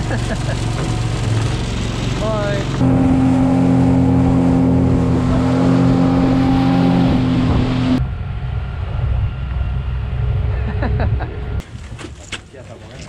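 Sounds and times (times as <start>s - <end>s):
outboard motor running: 0.0s - 8.5s
low rumble: 0.0s - 11.6s.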